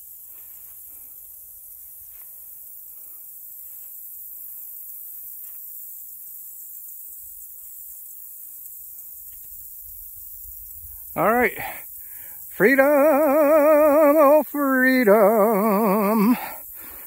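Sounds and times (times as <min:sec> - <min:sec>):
faint soft rustles: 0:00.0 - 0:11.1
steady high hiss: 0:00.0 - 0:17.0.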